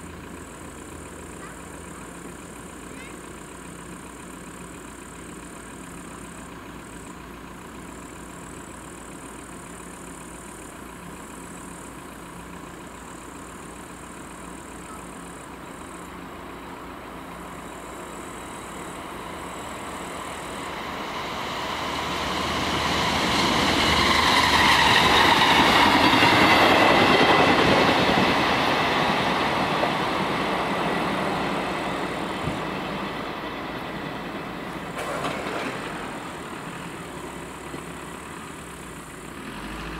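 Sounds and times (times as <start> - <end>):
train passing: 0.0 - 39.9
wheels squealing: 17.4 - 39.2.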